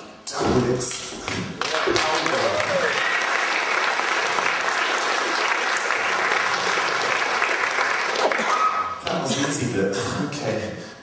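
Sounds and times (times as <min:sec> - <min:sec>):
audience applauding: 0:01.3 - 0:09.6.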